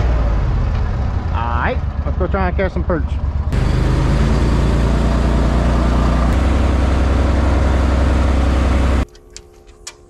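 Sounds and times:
wind: 0.0s - 6.6s, 9.0s - 10.0s
outboard motor running: 3.6s - 9.1s.

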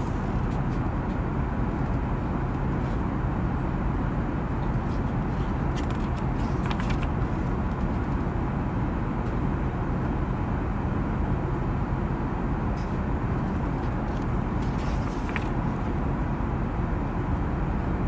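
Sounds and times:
airliner cabin noise: 4.1s - 8.6s, 12.6s - 17.1s
paper page turning: 4.8s - 8.0s, 13.4s - 15.8s.

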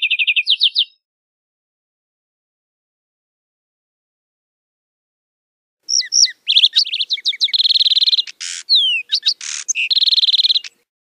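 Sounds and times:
sparrow singing: 0.0s - 1.0s, 5.9s - 10.9s.

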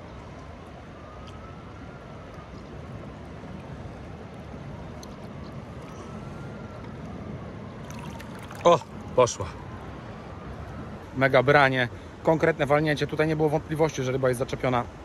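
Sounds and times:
distant siren wailing: 0.0s - 12.5s
river water rushing: 7.8s - 9.3s
water splashes: 7.8s - 9.3s.

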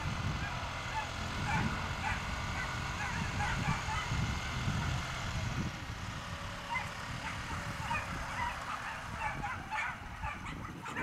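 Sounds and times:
dogs yipping and yelping: 0.4s - 4.2s, 6.6s - 11.0s.

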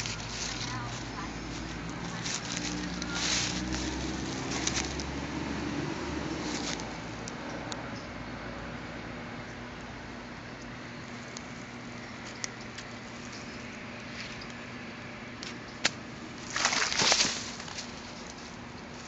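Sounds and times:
rustling and scraping leaves: 0.0s - 7.3s, 11.0s - 19.0s.

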